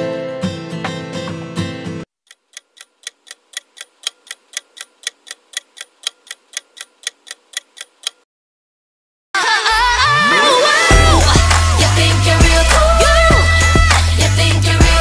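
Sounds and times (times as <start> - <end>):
clock ticking: 2.2 - 8.2.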